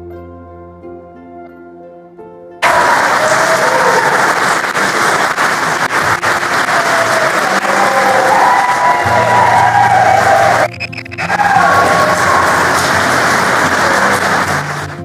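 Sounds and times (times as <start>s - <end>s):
soft instrumental music: 0.0s - 2.6s
congregation applauding: 2.6s - 15.0s.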